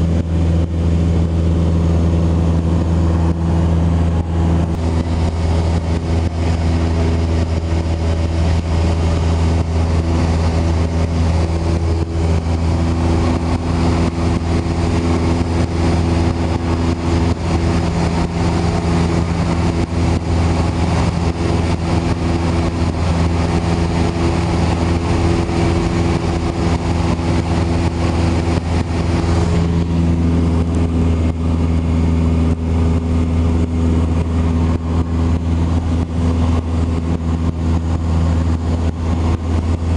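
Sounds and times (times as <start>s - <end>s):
airplane engine and propeller drone: 0.0s - 39.9s.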